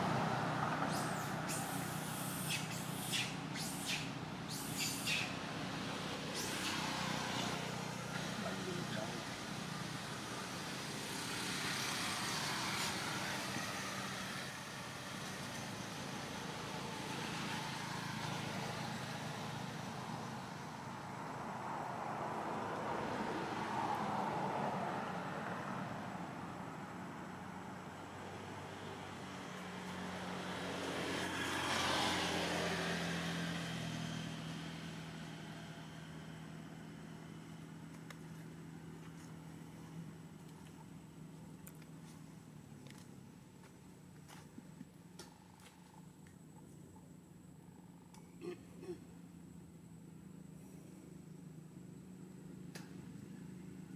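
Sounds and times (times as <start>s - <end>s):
motor vehicle passing: 0.0s - 53.9s
steady hiss: 0.9s - 5.4s.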